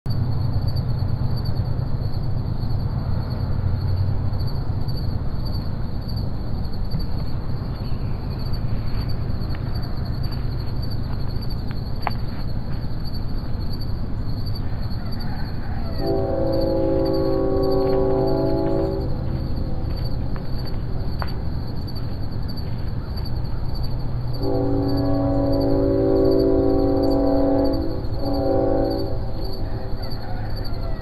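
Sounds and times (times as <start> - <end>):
insects trilling: 0.1 - 31.0
low rumble: 16.4 - 21.9.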